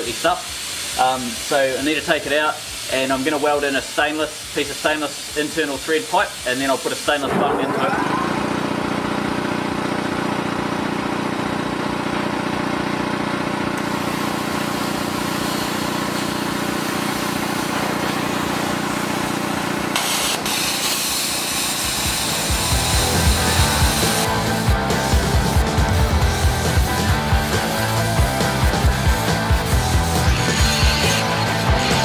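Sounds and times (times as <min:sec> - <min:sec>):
plasma cutter hissing: 0:00.0 - 0:08.1, 0:13.8 - 0:32.0
hum: 0:22.4 - 0:32.0.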